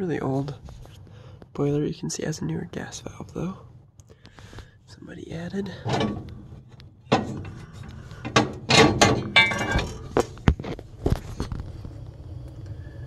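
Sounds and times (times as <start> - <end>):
metal parts knocking and clanking: 5.8 - 10.7.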